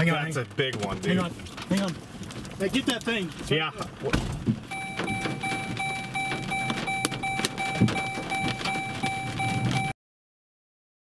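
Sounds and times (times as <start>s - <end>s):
hailstones hitting a vehicle: 0.0s - 9.9s
car warning chime beeping: 4.7s - 9.9s.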